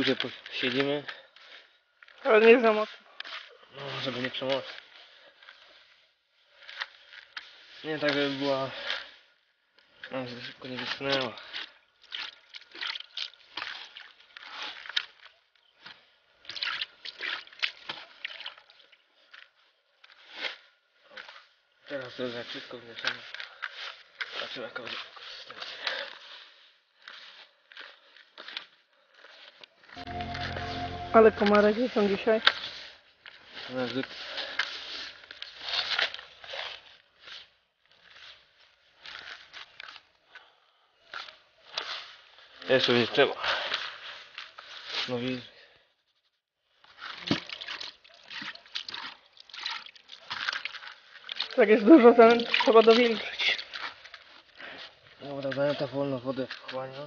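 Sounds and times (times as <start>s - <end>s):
hand stirring groundbait in bucket: 47.0s - 55.6s.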